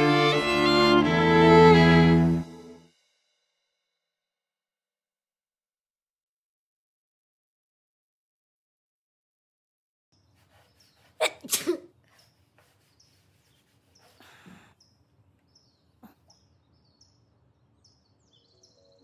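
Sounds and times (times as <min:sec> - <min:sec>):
small birds chirping: 0:10.2 - 0:19.0
woman sneezing: 0:11.2 - 0:11.9.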